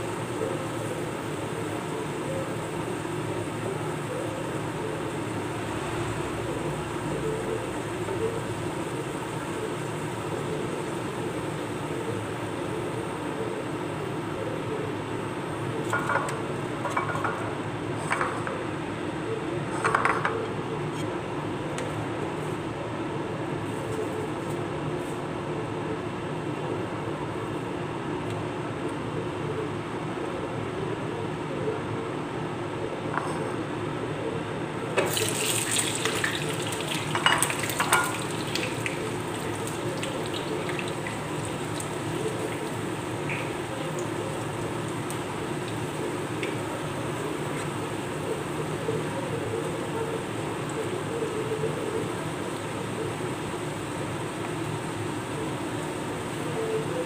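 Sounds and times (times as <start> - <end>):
steady low hum: 0.0 - 35.0, 35.6 - 57.0
food sizzling in hot oil: 35.0 - 48.6.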